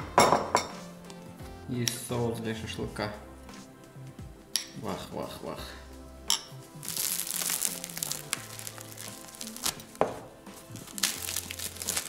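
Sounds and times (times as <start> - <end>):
background music with bass: 0.0 - 12.0
bread crust snapping: 6.8 - 10.0, 10.8 - 12.0
crusty bread tearing: 6.8 - 10.0, 10.6 - 12.0.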